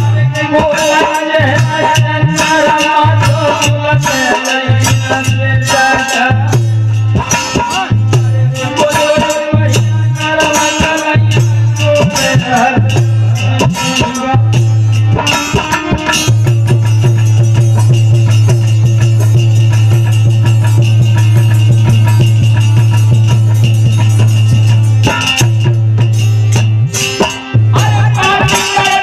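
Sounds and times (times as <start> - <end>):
percussion strikes: 0.0 - 29.0.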